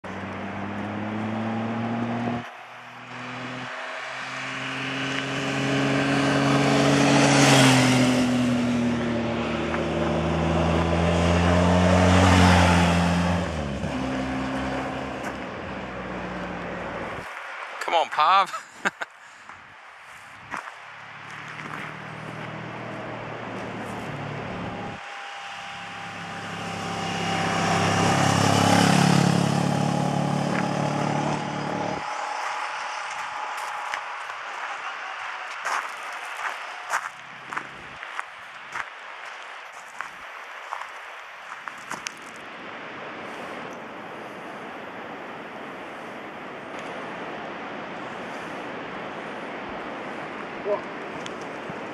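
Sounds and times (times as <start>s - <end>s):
motorcycle riding past: 0.1s - 17.2s, 21.2s - 37.9s
second motorcycle engine: 21.5s - 34.2s.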